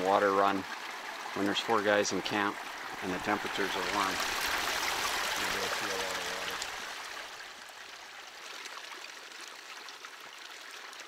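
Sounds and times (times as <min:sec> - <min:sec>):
creek running over rocks: 0:00.0 - 0:11.0
water pouring into plastic jug: 0:01.3 - 0:07.4.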